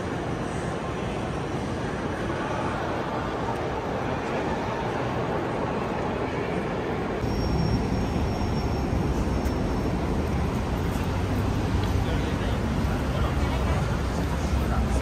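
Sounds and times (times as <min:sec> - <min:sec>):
crowd noise: 0:00.0 - 0:15.0
echoing hum of train station: 0:00.0 - 0:15.0
faint high whine: 0:06.5 - 0:10.7
traffic rumble: 0:07.1 - 0:15.0.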